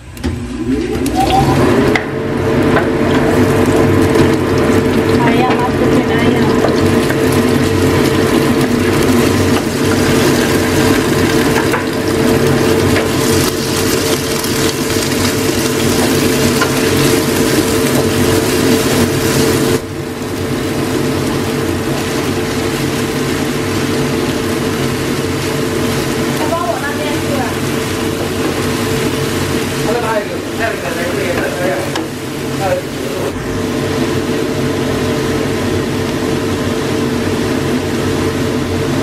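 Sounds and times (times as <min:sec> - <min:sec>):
food sizzling in a frying pan: 0:01.1 - 0:39.0
wooden spatula stirring: 0:20.4 - 0:32.8.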